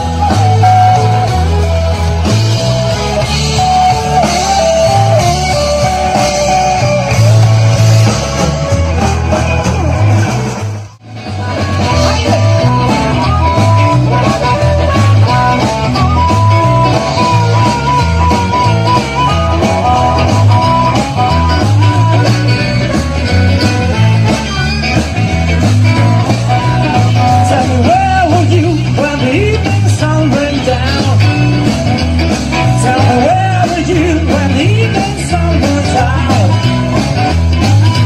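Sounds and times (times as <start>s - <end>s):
harmonica long notes: 0.0s - 10.3s, 11.2s - 28.6s
live rock band: 0.0s - 38.0s
man singing: 11.4s - 22.6s, 25.5s - 38.0s.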